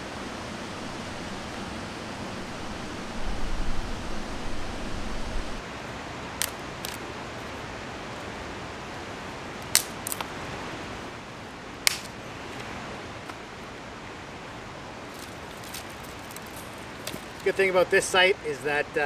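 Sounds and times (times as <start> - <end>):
low rumble: 0.0 - 5.6.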